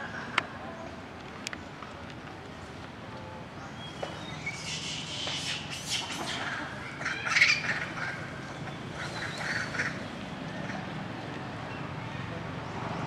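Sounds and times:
shrill animal calls: 0:04.2 - 0:08.3.

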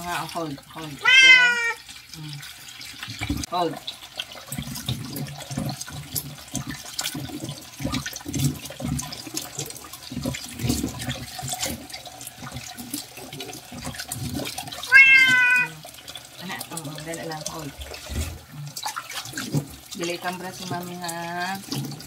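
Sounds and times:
tap running into basin: 0:00.0 - 0:22.0
water splashing: 0:00.0 - 0:22.0.

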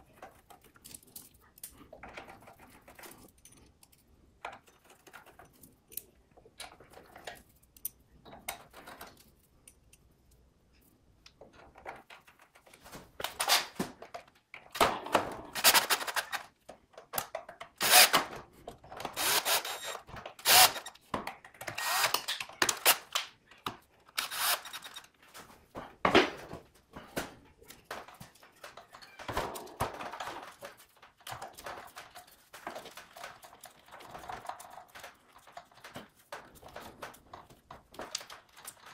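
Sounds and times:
thunks and clicks of parts: 0:00.0 - 0:38.9
cordless drill running in bursts: 0:17.8 - 0:18.2, 0:19.2 - 0:20.9, 0:21.8 - 0:22.2, 0:24.2 - 0:24.7.

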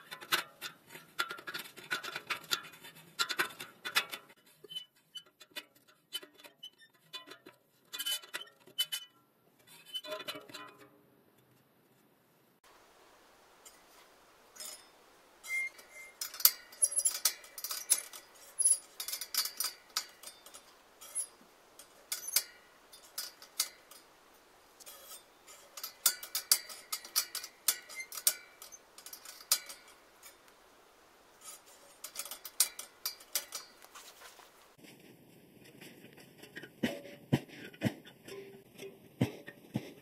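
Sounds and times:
rim ticking against caliper: 0:14.6 - 0:34.7.

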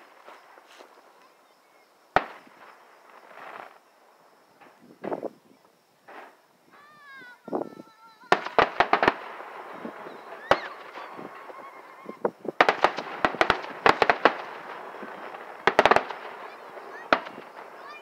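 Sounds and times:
firework shells bursting: 0:02.2 - 0:03.8, 0:08.3 - 0:18.0.

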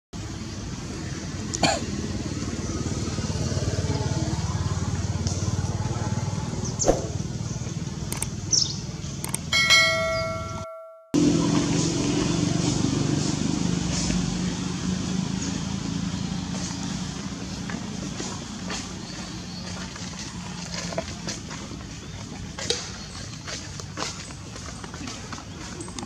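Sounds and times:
brief sharp sounds: 0:06.8 - 0:07.2
bright bell chime: 0:09.5 - 0:11.2.

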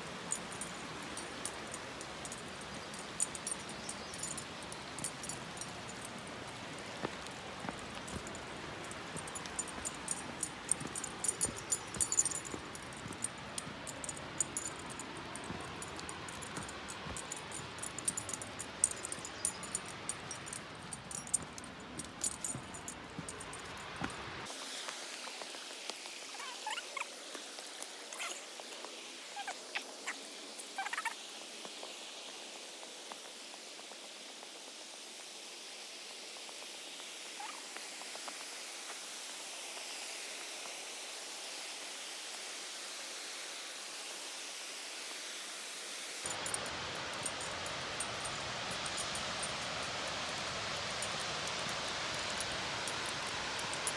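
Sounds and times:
creek water flowing: 0:00.0 - 0:34.5, 0:46.2 - 0:53.9.

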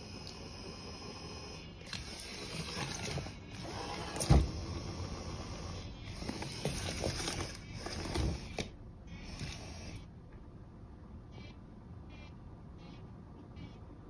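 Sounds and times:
plastic bag rustling: 0:06.1 - 0:08.6.

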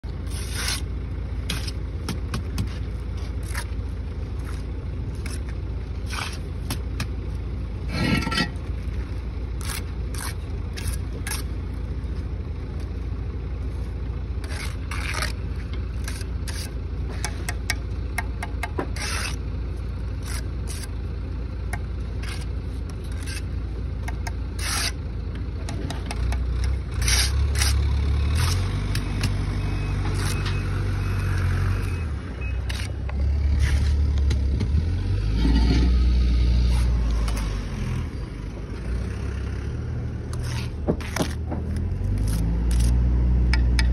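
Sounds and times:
low engine rumble: 0:00.0 - 0:43.9
trowel scraping and tapping: 0:40.3 - 0:42.9.

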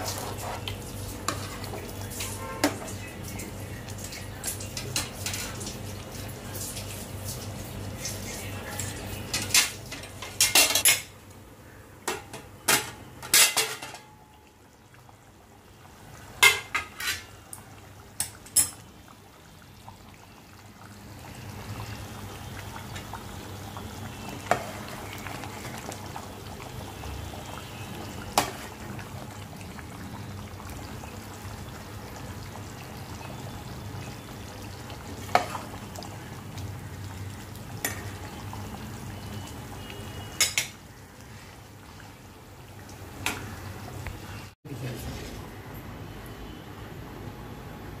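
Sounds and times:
curry bubbling at a simmer: 0:00.0 - 0:10.0, 0:14.1 - 0:44.6
metal utensil clinking on pot: 0:18.2 - 0:18.8, 0:40.4 - 0:40.8.

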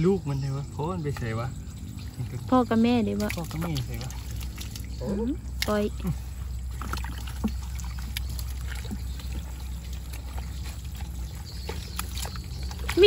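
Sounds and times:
small splashes and trickles: 0:00.0 - 0:13.0
hands sloshing through water: 0:02.0 - 0:13.0.

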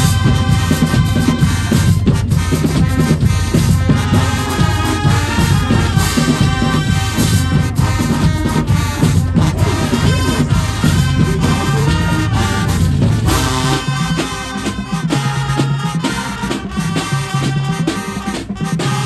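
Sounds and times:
drumline beat: 0:00.0 - 0:19.0
marching band brass section: 0:00.0 - 0:19.0.

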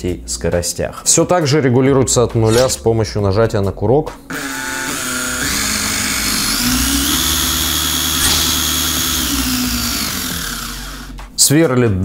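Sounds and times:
cordless drill motor whine: 0:02.5 - 0:02.7, 0:04.4 - 0:11.2.

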